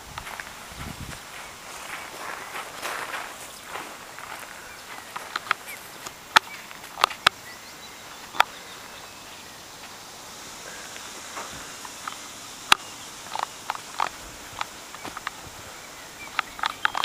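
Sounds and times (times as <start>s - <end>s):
faint outdoor background: 0.0s - 17.0s
footsteps on rough ground: 0.0s - 17.0s.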